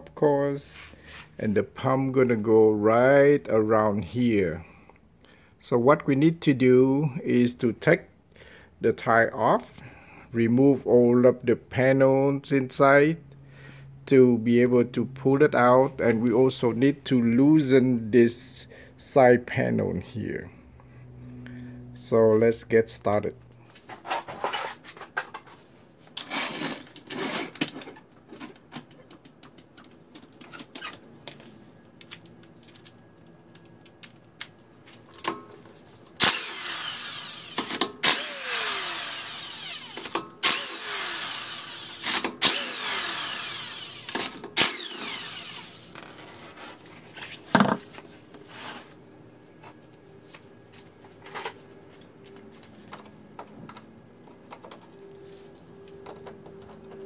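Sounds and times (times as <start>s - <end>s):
tools clicking and knocking: 26.2s - 31.4s
impact wrench bursts: 36.2s - 46.3s.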